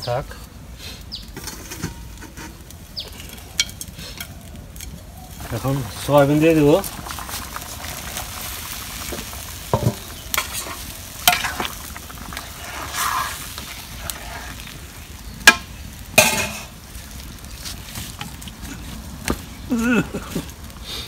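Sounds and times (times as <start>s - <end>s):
curry sizzling in a pan: 1.6s - 21.0s
spoon stirring and scraping pan: 9.0s - 14.9s.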